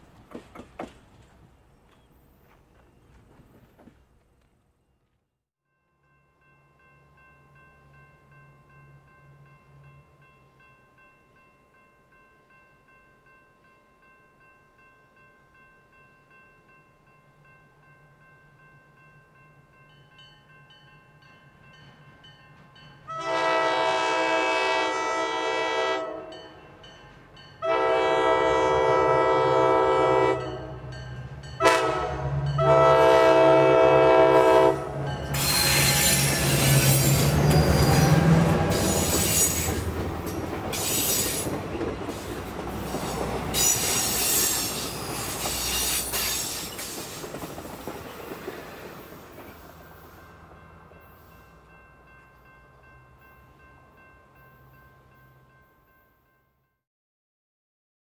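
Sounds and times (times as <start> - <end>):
crossing bell ringing faintly: 5.7 - 23.7, 49.0 - 56.8
locomotive horn: 23.1 - 26.5, 27.6 - 30.9, 31.6 - 39.9.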